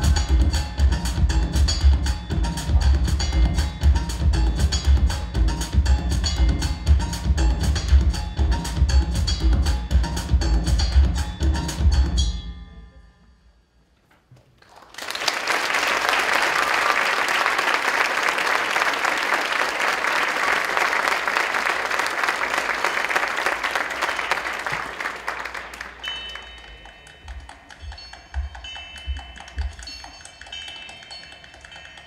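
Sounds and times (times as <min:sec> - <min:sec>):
percussive dance music: 0:00.0 - 0:12.2, 0:25.8 - 0:32.0
audience applause: 0:14.6 - 0:26.8.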